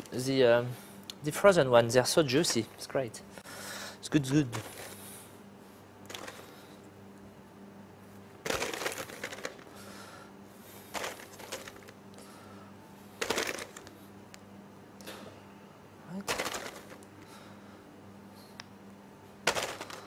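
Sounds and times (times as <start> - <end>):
frozen berries rattling in container: 6.1 - 6.5, 8.5 - 9.7, 10.9 - 11.9, 13.2 - 13.9, 16.3 - 17.0, 19.5 - 20.0.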